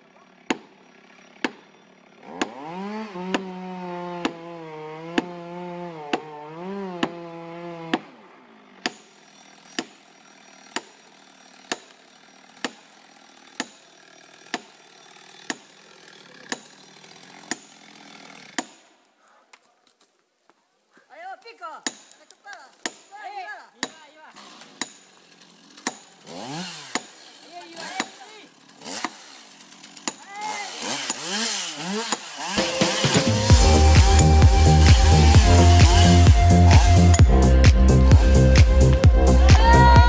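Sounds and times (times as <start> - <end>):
chainsaw revving: 0.0 - 18.9, 24.2 - 40.0
hammer strikes on tree: 0.5 - 0.7, 1.4 - 1.7, 2.4 - 2.6, 3.3 - 3.5, 4.2 - 4.4, 5.1 - 5.4, 6.1 - 7.2, 7.9 - 8.1, 8.8 - 9.0, 9.8 - 10.0, 11.7 - 11.9, 12.6 - 12.8, 14.5 - 14.7, 15.5 - 15.7, 16.5 - 16.7, 17.5 - 17.8, 18.5 - 18.9, 21.8 - 23.2, 23.8 - 24.0, 24.8 - 25.1, 25.8 - 26.1, 26.9 - 27.1, 30.0 - 30.3.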